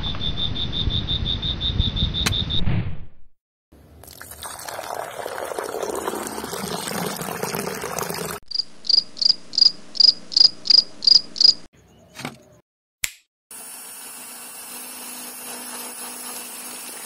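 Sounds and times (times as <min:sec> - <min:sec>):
cricket chirping: 0:00.0 - 0:02.6, 0:08.5 - 0:12.0
short clicks: 0:13.0 - 0:13.3.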